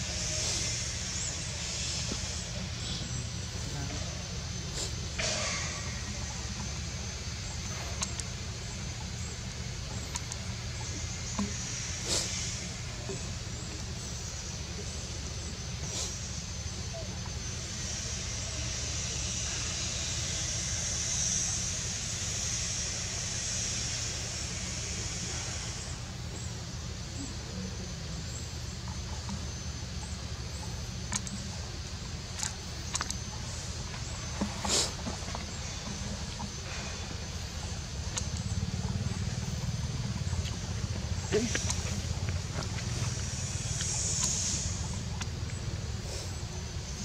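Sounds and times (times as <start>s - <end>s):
high-pitched insect drone: 0.0s - 47.0s
low steady hum: 0.0s - 47.0s
faint clicks: 9.9s - 10.6s, 31.0s - 31.5s, 32.3s - 36.6s.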